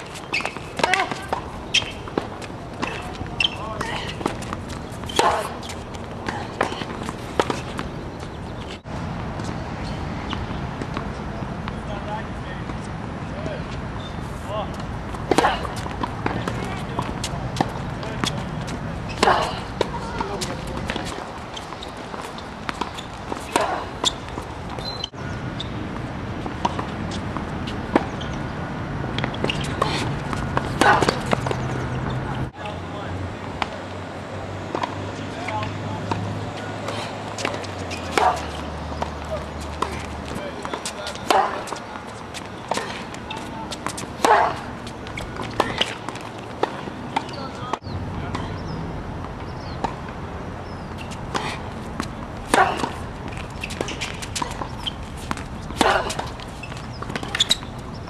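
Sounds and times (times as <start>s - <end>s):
tennis ball bouncing: 0.0s - 11.9s, 14.7s - 32.8s, 34.6s - 58.0s
tennis ball hitting racquets: 0.0s - 12.0s, 14.2s - 32.8s, 34.6s - 58.0s
tennis ball off racket strings: 29.2s - 32.2s.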